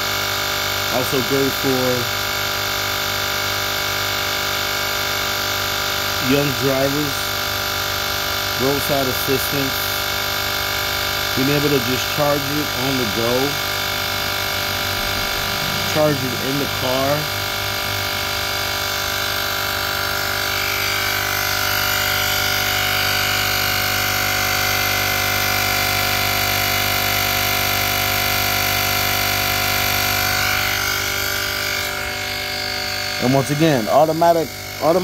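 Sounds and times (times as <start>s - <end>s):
air compressor motor humming: 0.0s - 35.0s.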